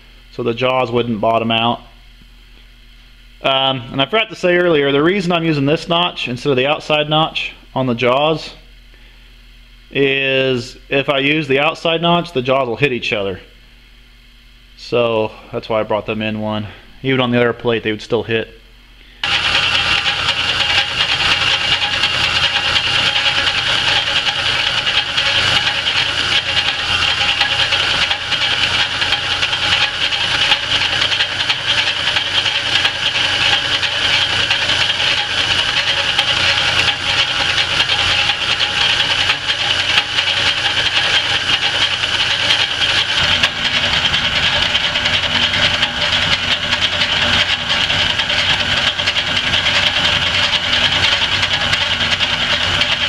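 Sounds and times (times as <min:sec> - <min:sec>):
lathe machine drone: 0:19.2 - 0:53.0
lathe tool cutting hiss: 0:19.2 - 0:53.0.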